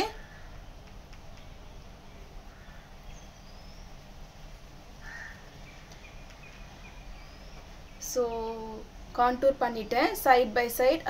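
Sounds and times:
low background hum: 0.0s - 11.0s
distant bird chirps: 0.1s - 8.8s.

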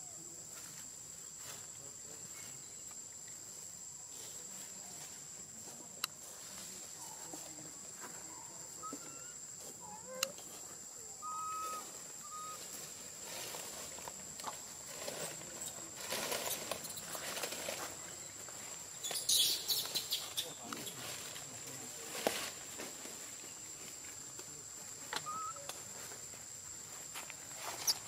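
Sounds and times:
high insect trill: 0.0s - 28.0s
short chirping calls: 11.2s - 12.7s, 19.0s - 20.8s, 25.2s - 25.7s
dry leaves rustling: 11.6s - 18.9s, 19.7s - 24.7s.

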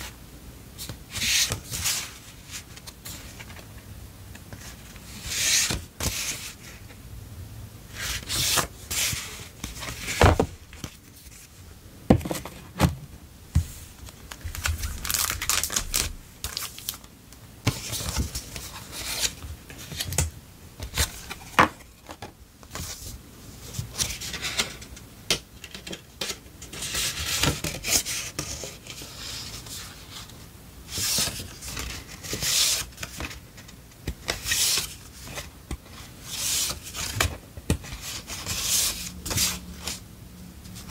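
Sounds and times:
paper and plastic rustling: 13.6s - 17.1s.

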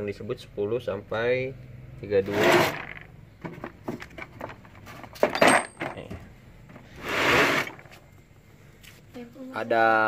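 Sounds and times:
metal tools clinking in toolbox: 3.9s - 6.3s
metal clank with ring: 5.3s - 6.1s
short scraping noise: 6.8s - 8.0s.

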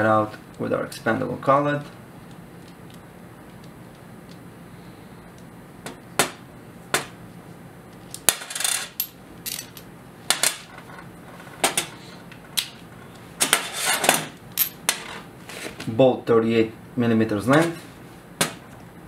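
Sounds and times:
small metal parts clinking: 8.3s - 9.9s
metal rattling scrape: 13.4s - 14.3s.

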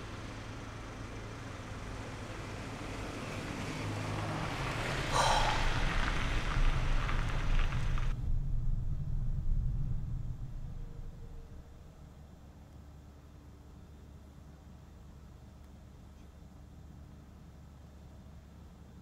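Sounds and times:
rushing hiss: 4.9s - 8.0s
low rumble: 5.0s - 12.4s.

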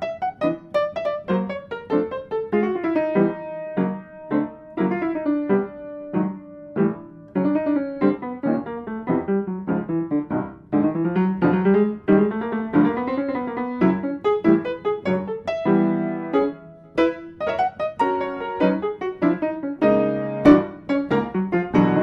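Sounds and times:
solo piano music: 0.0s - 22.0s.

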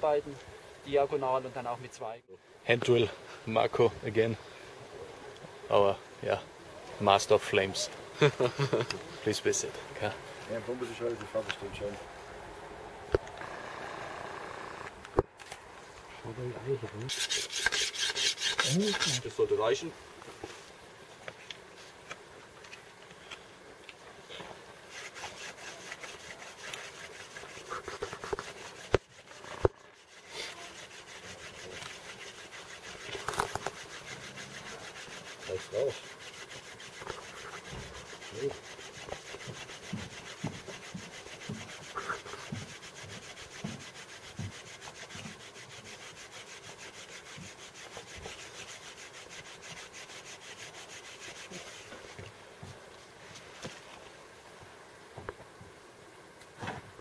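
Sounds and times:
wood rubbing against wood: 16.0s - 20.6s, 24.3s - 52.4s.

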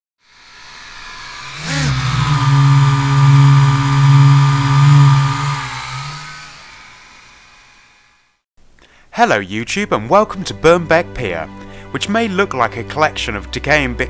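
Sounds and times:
drone propellers whirring: 0.2s - 8.3s.

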